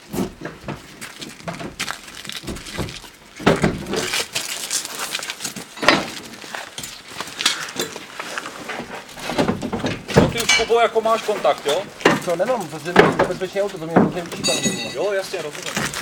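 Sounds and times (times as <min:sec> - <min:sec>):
metallic clanks and scrapes: 0:05.8 - 0:16.0.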